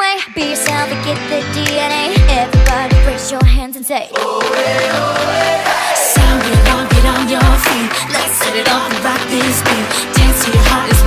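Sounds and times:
pop dance music: 0.0 - 11.0
deep kick drums dropping in pitch: 2.2 - 3.6, 6.2 - 7.7.

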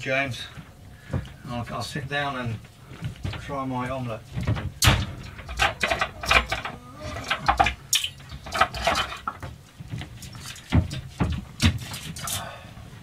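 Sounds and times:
footsteps on cabin floor: 0.5 - 4.8
things being handled: 2.6 - 12.4.

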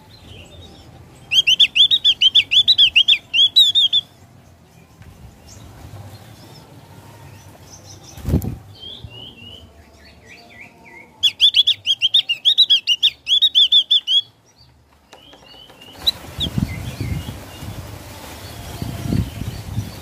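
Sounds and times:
bird singing: 0.0 - 20.0
wings fluttering: 8.0 - 8.7, 15.1 - 20.0.

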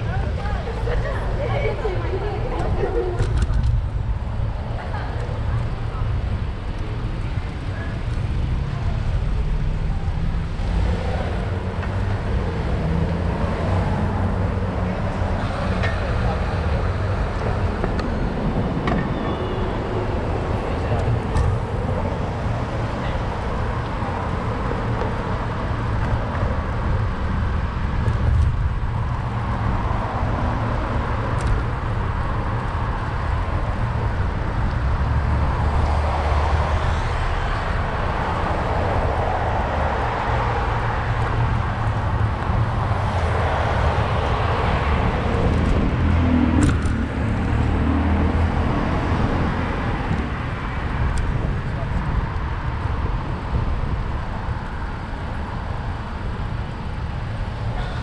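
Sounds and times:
steady low rumble: 0.0 - 12.7
cars passing: 0.0 - 58.0.

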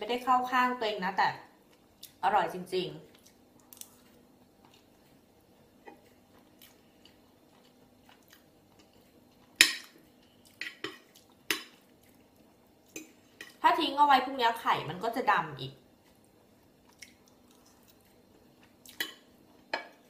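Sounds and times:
person chewing rice: 3.1 - 13.6, 15.9 - 20.0.

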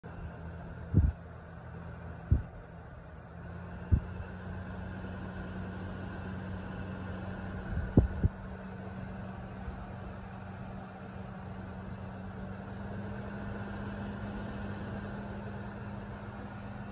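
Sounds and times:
window fan rushing air: 0.1 - 16.9
dull low thumps: 0.8 - 1.2, 2.2 - 2.6, 3.8 - 4.2, 7.6 - 8.4.

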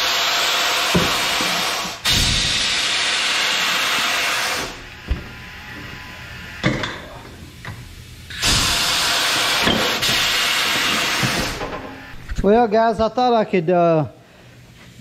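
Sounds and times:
loud steady hiss: 0.0 - 11.7
metal clanks of tire changer: 6.6 - 8.8.

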